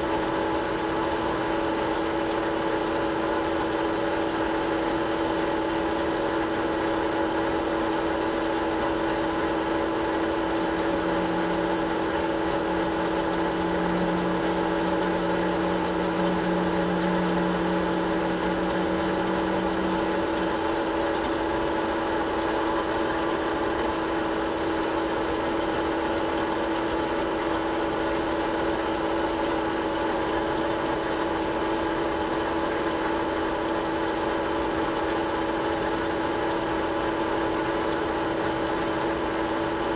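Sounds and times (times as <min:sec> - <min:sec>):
metal lathe humming: 0:00.0 - 0:39.9
low hum: 0:10.5 - 0:22.8.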